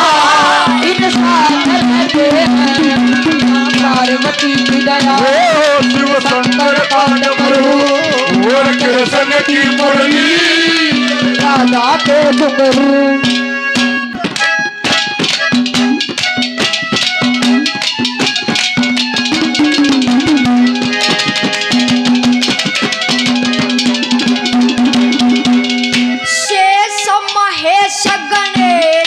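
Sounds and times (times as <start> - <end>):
young man singing: 0.0 - 11.7
fast hand drum strokes: 0.0 - 29.0
harmonium holding notes: 0.0 - 29.0.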